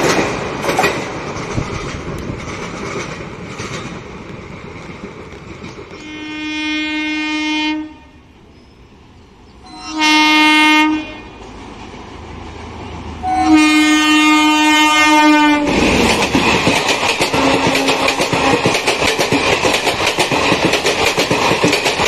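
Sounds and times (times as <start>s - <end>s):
train wheels clattering over rails: 0.0s - 6.2s, 15.4s - 22.0s
train horn blasts: 6.0s - 8.3s, 9.6s - 11.4s, 13.2s - 15.8s, 17.3s - 18.7s.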